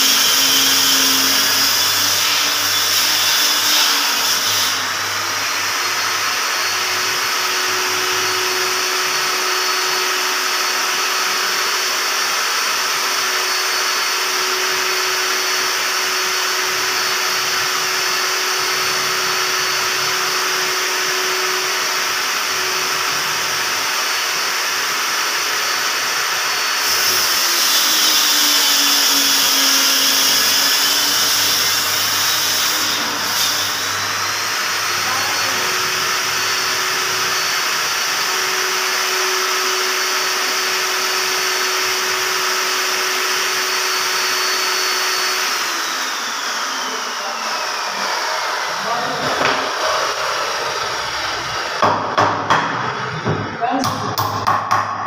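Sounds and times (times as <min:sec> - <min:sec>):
saw blade cutting board: 0:00.0 - 0:10.1, 0:25.6 - 0:55.0
table saw motor whine: 0:00.0 - 0:53.8
knock: 0:49.2 - 0:49.7, 0:51.8 - 0:55.0.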